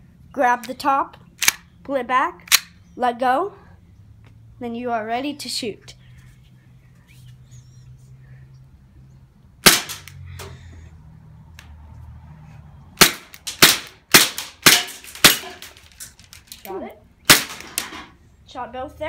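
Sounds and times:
airsoft pistol firing: 9.6s - 10.1s, 13.0s - 15.7s, 17.3s - 17.8s.

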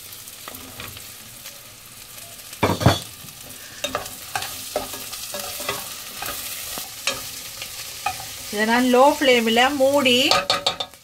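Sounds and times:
onions sizzling in a pot: 0.0s - 11.0s
spatula scraping: 2.6s - 7.4s
spatula knocking against pot: 10.3s - 11.0s.

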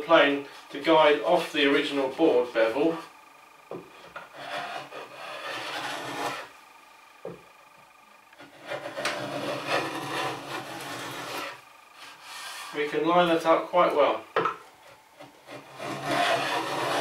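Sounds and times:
hand plane shaving wood: 4.2s - 6.5s, 8.4s - 12.8s, 15.2s - 17.0s.

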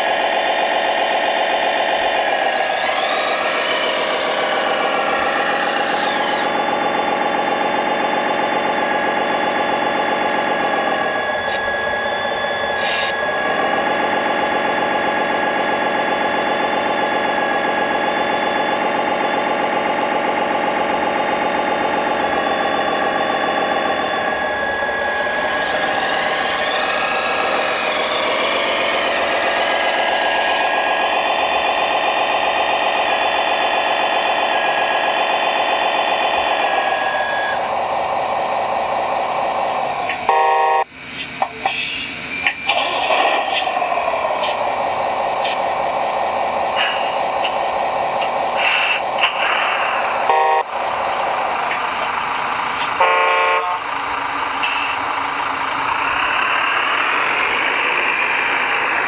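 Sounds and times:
hydraulic pumps whining hum: 0.0s - 59.0s
rough hissing noise: 48.6s - 50.1s.

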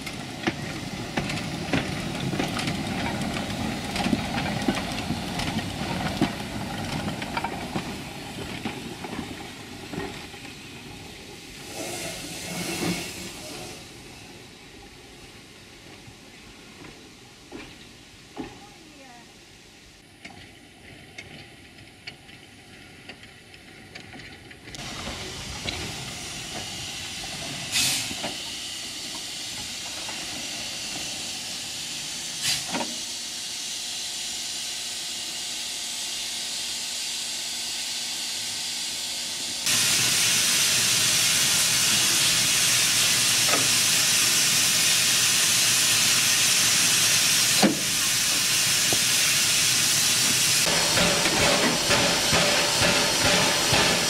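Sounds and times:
steam hissing: 6.4s - 16.6s, 24.8s - 54.0s
sharp metallic clanks: 50.6s - 54.0s.

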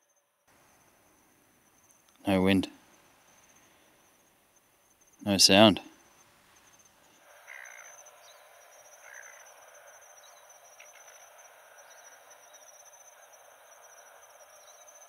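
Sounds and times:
insects chirring: 0.0s - 15.0s
soft chirps: 5.9s - 15.0s.

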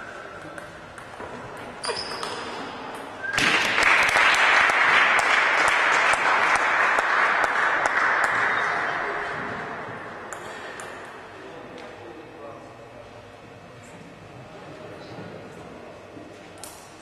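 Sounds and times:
ping-pong ball clicks: 0.3s - 3.2s
spectators applauding: 3.5s - 9.2s.

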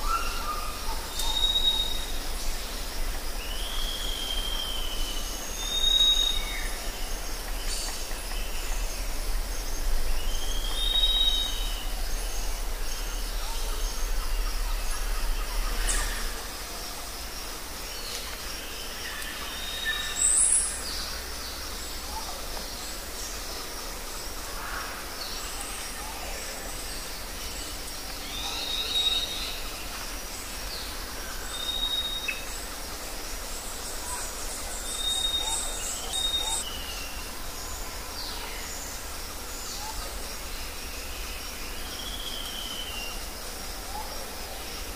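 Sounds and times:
steady background hiss: 0.0s - 44.9s
birds and animals calling: 24.3s - 44.9s.

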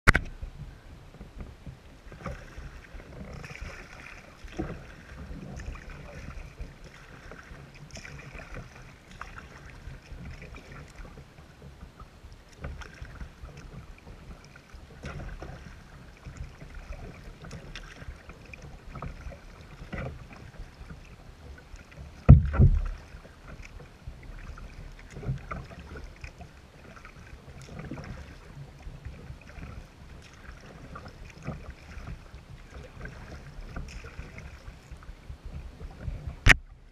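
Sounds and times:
paddle splashing water: 0.1s - 36.9s
loud low thump: 22.3s - 22.9s.

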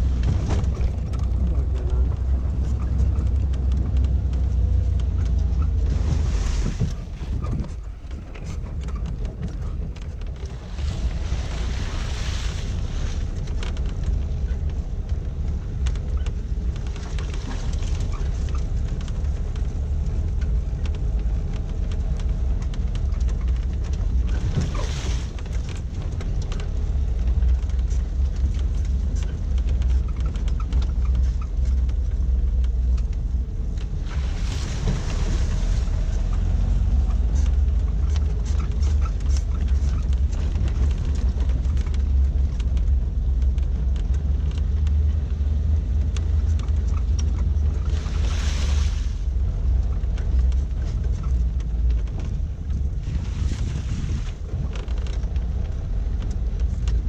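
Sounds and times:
knocks and rattles: 0.0s - 48.2s
car engine rumbling: 0.0s - 57.0s.

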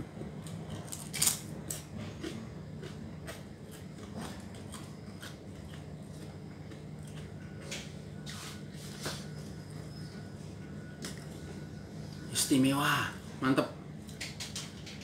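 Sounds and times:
chewing and eating sounds: 0.4s - 9.3s.

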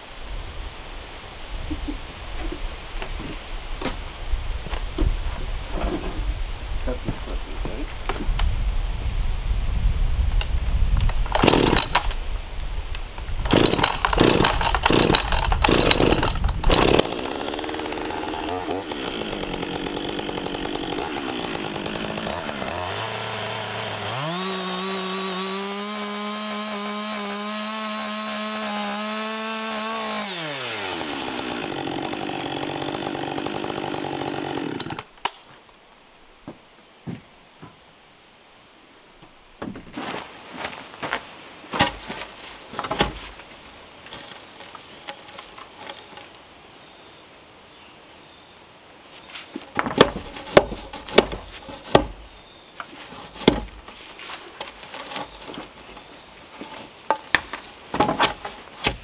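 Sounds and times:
chainsaw cutting wood: 11.0s - 12.2s, 13.4s - 35.4s.

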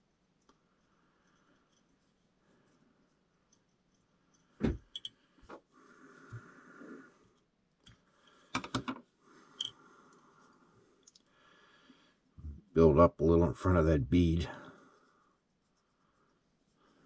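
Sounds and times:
soft thread rubbing: 0.0s - 8.1s, 14.7s - 17.0s.

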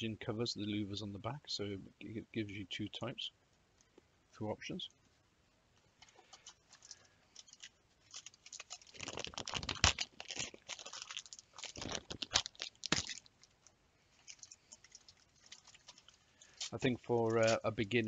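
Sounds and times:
plastic packaging crinkling: 6.0s - 17.8s.

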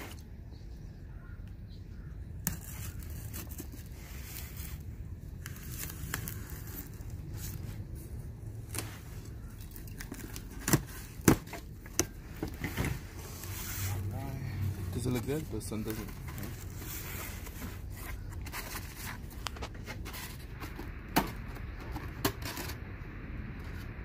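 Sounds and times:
cardboard and tape tearing: 2.4s - 7.8s, 10.0s - 20.5s.

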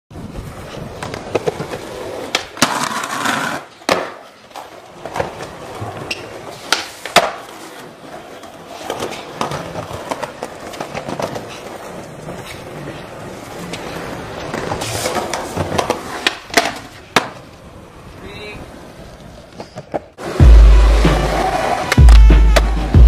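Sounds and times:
skateboard wheels rolling on concrete: 0.1s - 23.0s
skateboard clacking: 0.8s - 22.9s.

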